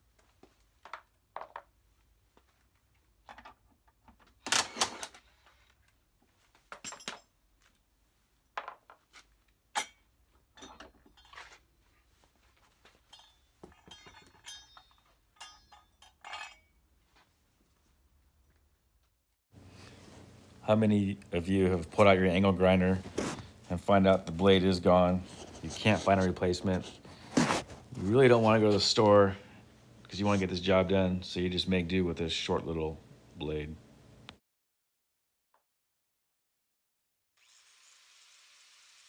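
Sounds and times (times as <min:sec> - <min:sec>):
metallic clinks of tools and parts: 0:06.7 - 0:07.4, 0:09.8 - 0:11.6, 0:12.8 - 0:16.9
metal clattering: 0:12.9 - 0:16.8.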